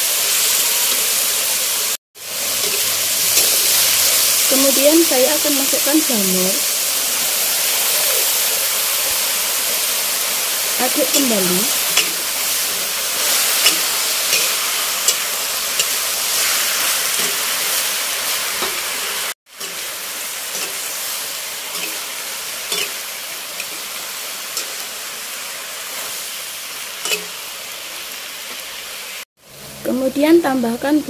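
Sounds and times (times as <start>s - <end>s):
food sizzling in wok: 0.0s - 31.0s
metal spatula scraping pan: 11.0s - 17.8s, 20.5s - 21.0s, 21.7s - 23.0s, 27.0s - 27.4s.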